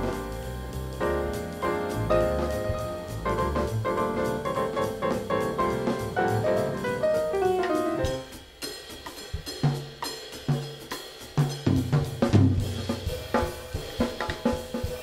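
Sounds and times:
jazz piano trio playing: 0.0s - 8.5s
drums playing alone: 0.0s - 15.0s.

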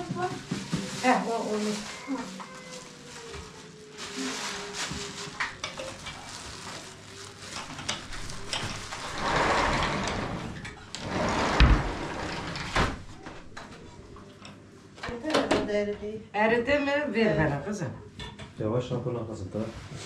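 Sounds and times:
rustling: 0.0s - 13.6s.

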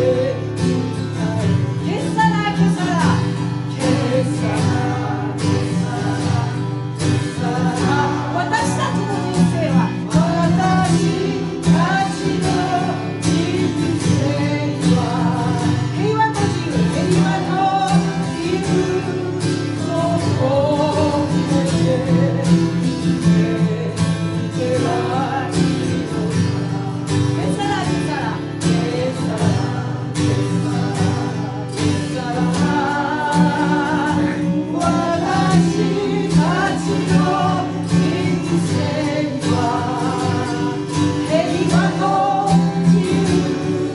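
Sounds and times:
acoustic guitar chords: 0.0s - 43.9s.

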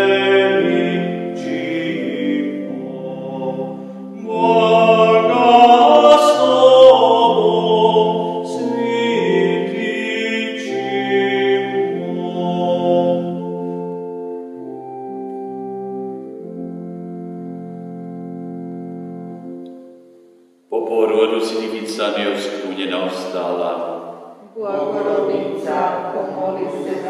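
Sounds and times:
man singing a hymn: 0.0s - 13.8s, 20.8s - 24.0s
electronic keyboard organ chords: 0.0s - 27.0s.

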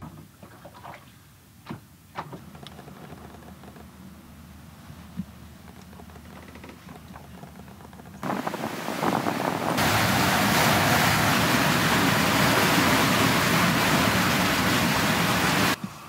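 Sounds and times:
wind and water rushing: 8.2s - 15.8s.

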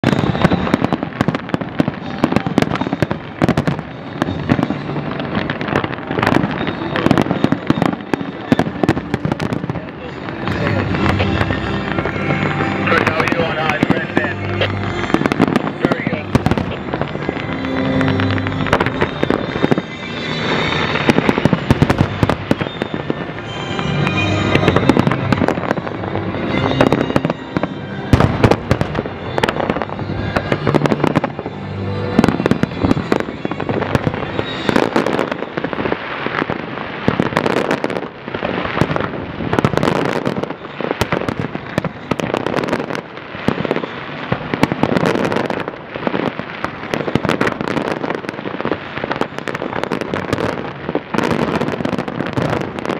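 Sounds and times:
firework crackling: 0.0s - 52.9s
show music: 1.9s - 37.8s.

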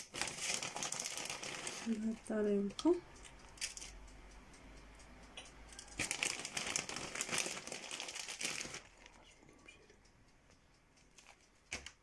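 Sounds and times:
plastic bag crinkling: 0.0s - 2.2s, 6.0s - 9.2s.

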